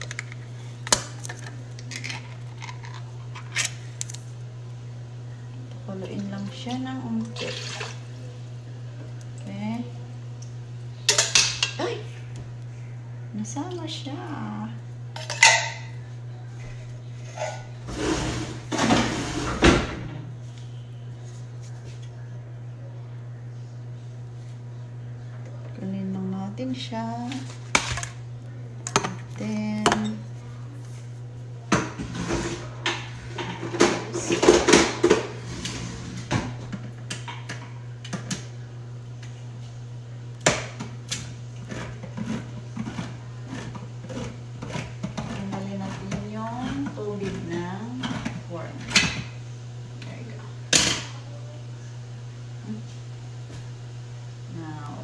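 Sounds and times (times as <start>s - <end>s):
steady low hum: 0.0s - 55.0s
liquid splashing into sink: 7.3s - 8.0s.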